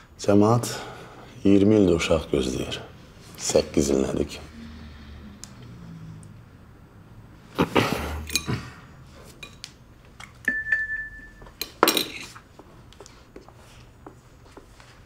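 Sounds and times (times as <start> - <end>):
tableware clinking and clattering: 8.2 - 8.6, 9.3 - 9.6, 10.2 - 12.4.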